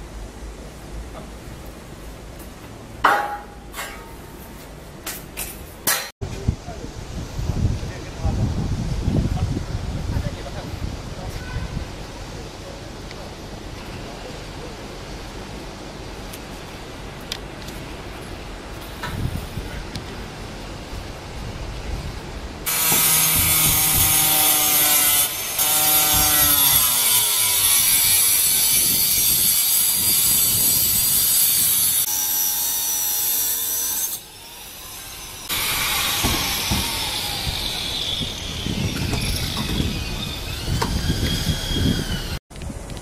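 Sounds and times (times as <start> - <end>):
angle grinder cutting metal: 22.7 - 42.4.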